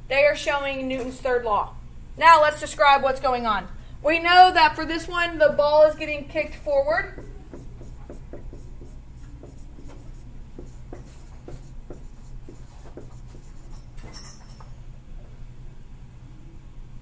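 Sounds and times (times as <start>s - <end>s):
marker writing on whiteboard: 6.4s - 14.0s.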